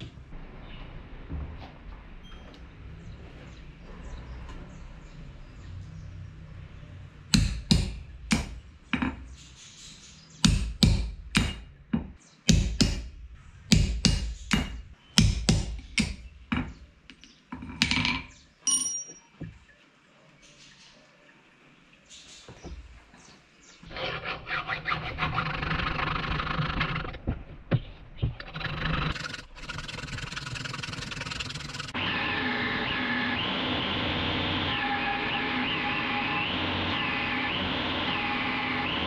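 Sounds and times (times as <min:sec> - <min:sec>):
hammer striking punch on steel: 0:07.4 - 0:08.6, 0:10.4 - 0:11.7, 0:13.7 - 0:16.2.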